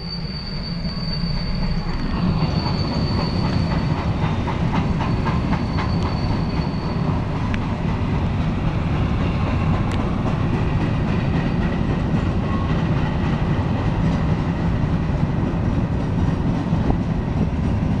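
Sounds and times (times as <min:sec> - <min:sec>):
faint high squeal: 0:00.0 - 0:04.2, 0:04.9 - 0:07.3, 0:12.4 - 0:12.8
freight train rumbling past: 0:00.0 - 0:18.0
wheels clacking over rail joints: 0:01.2 - 0:18.0.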